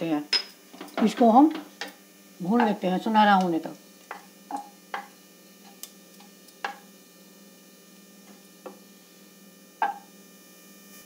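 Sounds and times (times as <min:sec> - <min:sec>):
wooden spatula knocking on pot: 0:04.1 - 0:05.1, 0:06.6 - 0:06.8, 0:09.8 - 0:10.0.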